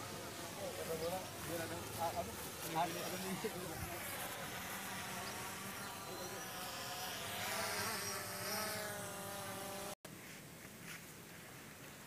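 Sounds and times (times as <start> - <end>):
drone propellers buzzing: 1.2 - 10.0.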